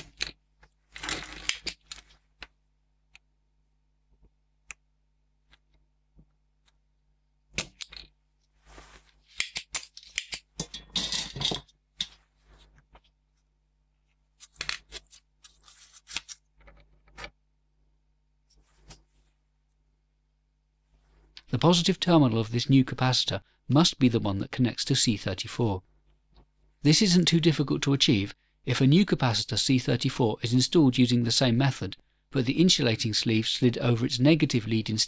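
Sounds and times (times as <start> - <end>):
tools clattering on bench: 9.4 - 12.2.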